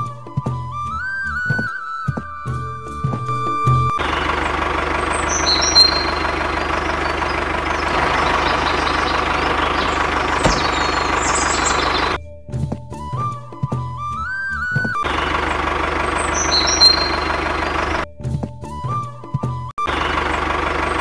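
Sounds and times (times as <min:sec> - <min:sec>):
tractor engine running: 0:03.0 - 0:12.2, 0:14.8 - 0:18.8, 0:19.8 - 0:21.0
faint high chirps: 0:04.2 - 0:12.2, 0:16.0 - 0:18.0.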